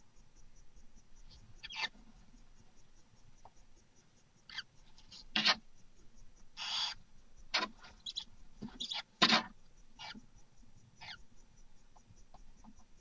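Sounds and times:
barn owl calls: 1.3s - 2.1s, 4.4s - 5.6s, 6.5s - 11.4s.

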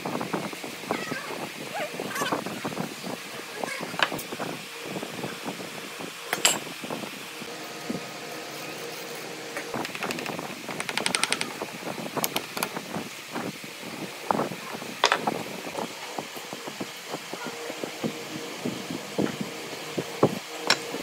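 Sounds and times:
steady hum: 0.0s - 21.0s
knocks and clicks on wood: 9.8s - 11.5s
rattle of rapid clicks: 9.8s - 11.5s.

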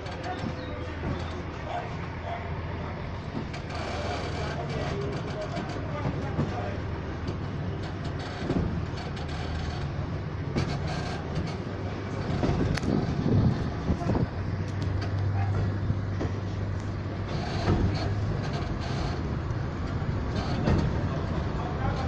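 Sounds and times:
train rolling rumble: 0.0s - 22.0s.

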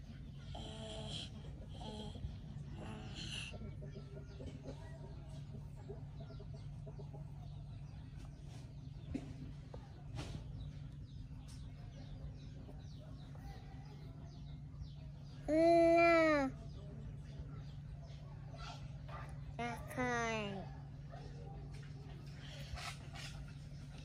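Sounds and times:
chickens clucking: 0.0s - 15.5s.

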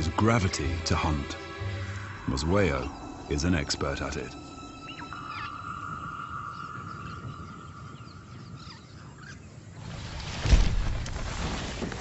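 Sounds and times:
steady high tone: 0.0s - 9.0s
faint bird chirps: 1.2s - 9.6s.

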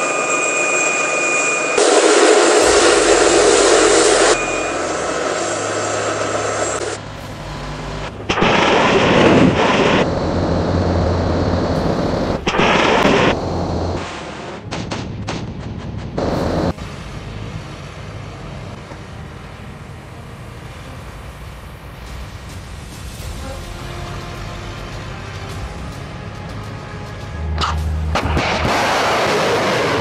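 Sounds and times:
high whine: 0.0s - 26.2s
missile launch roar: 1.7s - 15.0s, 28.2s - 30.0s.

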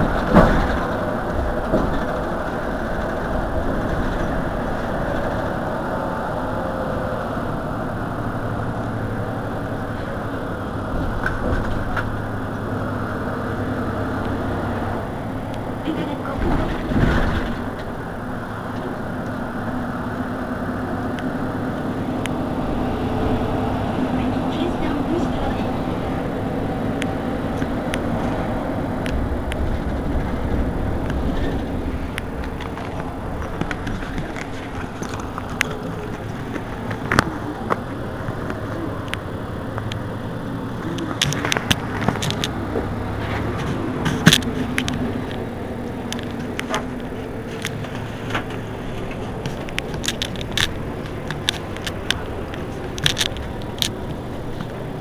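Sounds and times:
bus engine idling: 0.0s - 55.0s
sharp clicks and knocks: 40.8s - 45.5s, 46.1s - 55.0s.

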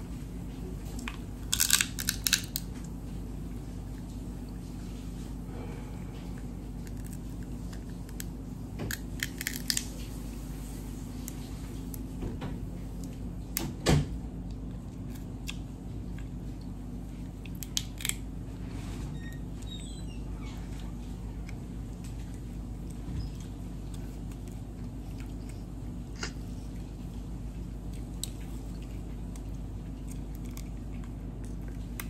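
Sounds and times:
steady low hum: 0.0s - 32.0s
crab shell cracking: 1.0s - 2.7s, 6.8s - 9.9s, 17.4s - 18.3s
chewing: 20.8s - 32.0s.

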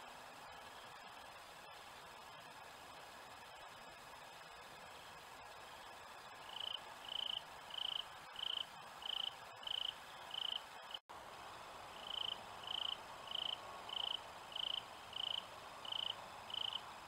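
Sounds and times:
steady hiss: 0.0s - 17.0s
insect chirping: 6.4s - 11.0s, 11.9s - 16.9s.

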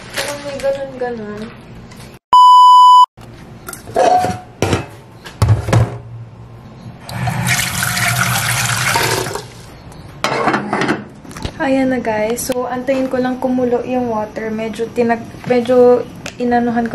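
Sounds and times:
tap water running into pot: 7.1s - 9.6s.

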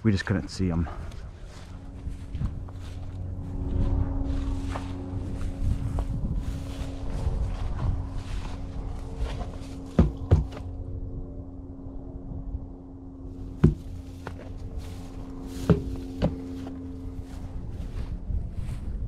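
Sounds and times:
steady low hum: 0.0s - 19.0s
footsteps through dry grass and snow: 0.5s - 10.8s, 13.3s - 19.0s
wind on microphone: 1.2s - 19.0s
sharp knocks: 9.9s - 10.6s, 13.5s - 14.4s, 15.6s - 16.6s.

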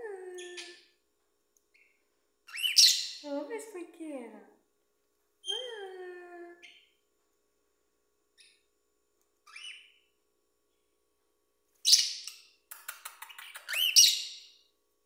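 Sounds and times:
cockatiel screeching and chirping: 2.5s - 3.2s, 9.4s - 10.0s, 13.3s - 14.5s.

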